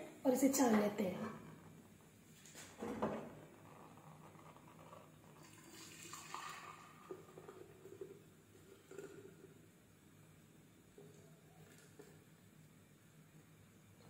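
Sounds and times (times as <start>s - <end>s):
tea pouring through strainer: 3.5s - 10.3s, 10.9s - 12.5s.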